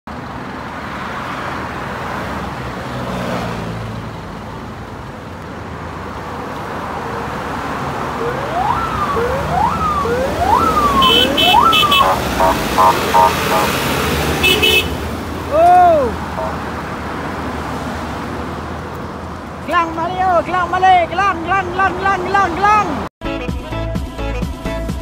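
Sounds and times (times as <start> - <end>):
expressway traffic noise: 0.1 - 23.1
vehicle siren sweeps: 7.0 - 14.2, 15.9 - 16.7.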